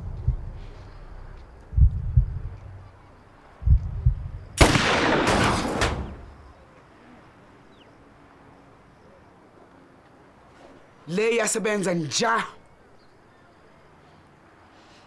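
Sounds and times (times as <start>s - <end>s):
low thuds: 0.0s - 3.0s, 3.6s - 6.5s
pistol shot: 4.6s - 6.3s.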